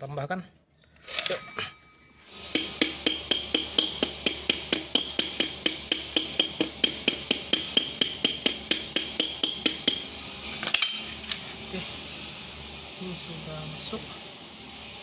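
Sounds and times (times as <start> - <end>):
hammer striking steel punch: 2.5 - 10.1.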